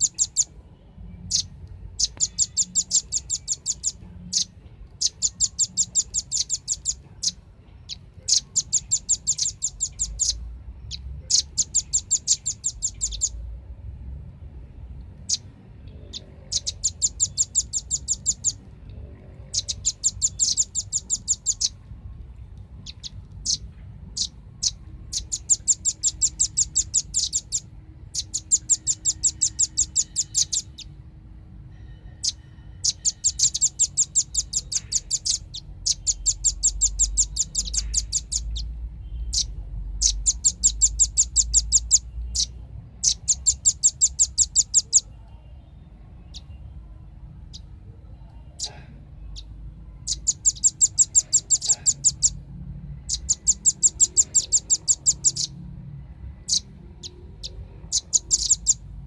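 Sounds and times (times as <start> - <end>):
bird trilling high chip notes: 1.3 - 13.4, 16.1 - 18.7, 19.4 - 21.8, 24.2 - 30.9, 32.2 - 38.7, 39.3 - 45.0, 50.0 - 52.4, 53.1 - 55.5, 57.4 - 58.8.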